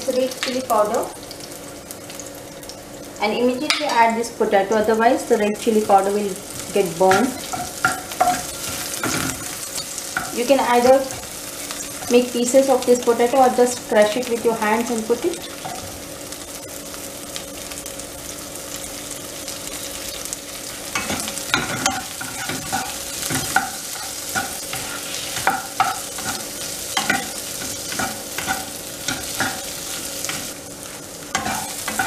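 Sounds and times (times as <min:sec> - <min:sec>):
potatoes sizzling in hot oil: 0:00.0 - 0:32.0
wooden spatula scraping a wok: 0:21.8 - 0:26.5.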